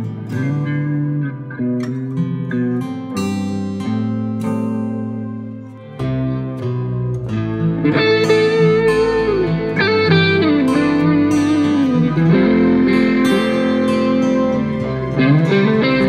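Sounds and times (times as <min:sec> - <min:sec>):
guitar bending held notes: 0:00.0 - 0:16.0
steady musical accompaniment: 0:03.5 - 0:16.0.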